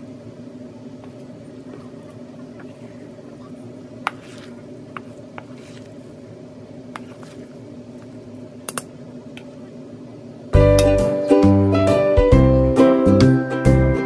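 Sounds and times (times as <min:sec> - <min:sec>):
steady low hum: 0:00.0 - 0:14.0
spoon mashing food in a bowl: 0:04.0 - 0:06.0, 0:06.9 - 0:08.1
cheerful music: 0:10.6 - 0:14.0.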